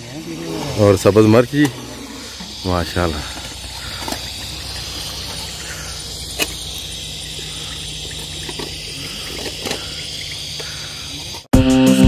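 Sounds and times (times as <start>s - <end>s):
continuous hiss: 0.0s - 11.5s
loud guitar music: 11.5s - 12.0s.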